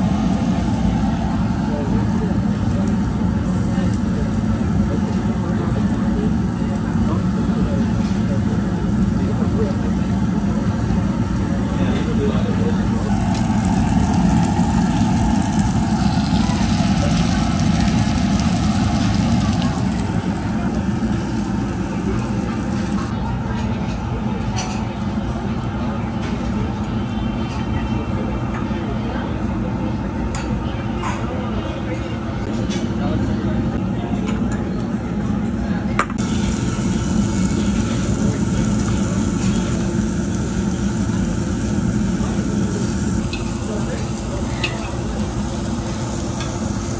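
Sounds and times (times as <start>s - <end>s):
ventilation rumble: 0.0s - 46.9s
meat sizzling on grill: 12.9s - 23.1s, 36.2s - 46.9s.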